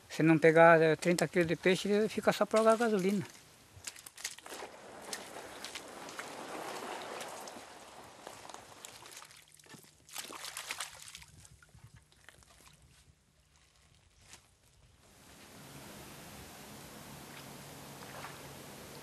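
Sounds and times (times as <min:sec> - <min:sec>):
knocks and splashes: 0:02.5 - 0:12.8
canoe scraping through mud: 0:04.4 - 0:11.0.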